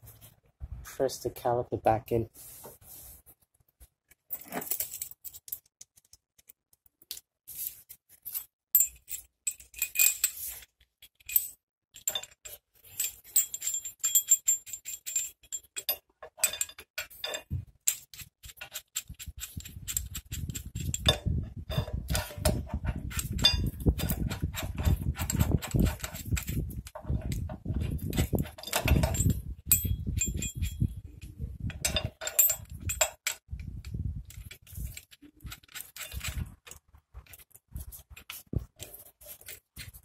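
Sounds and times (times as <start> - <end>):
metal tool parts clinking: 4.3 - 5.7, 7.0 - 31.0, 31.7 - 33.5, 34.3 - 37.4
tool scraping with rapid clicks: 12.0 - 40.0.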